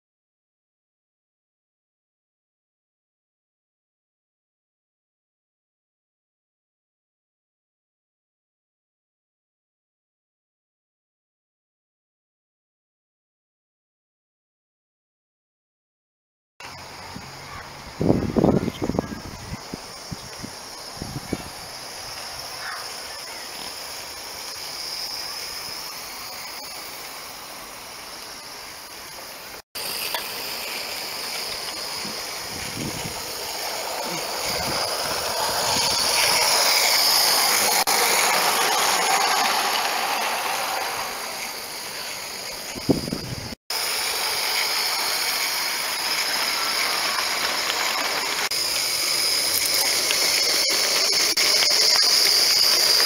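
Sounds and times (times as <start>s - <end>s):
model steam locomotive hissing: 16.6s - 53.0s.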